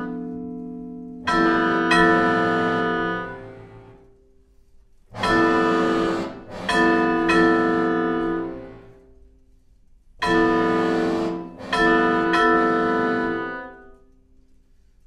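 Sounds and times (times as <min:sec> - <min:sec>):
viola: 0:00.0 - 0:14.1
piano: 0:00.0 - 0:15.0
percussion: 0:04.6 - 0:15.0
accordion: 0:10.4 - 0:13.8.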